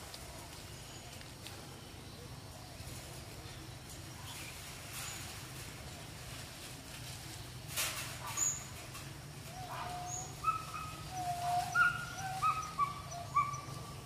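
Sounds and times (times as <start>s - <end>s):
whistle-like animal calls: 9.6s - 13.7s.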